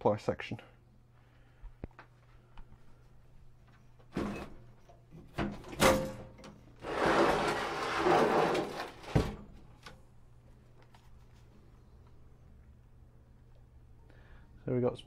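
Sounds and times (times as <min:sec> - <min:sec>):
metal scraping: 0:06.8 - 0:09.3.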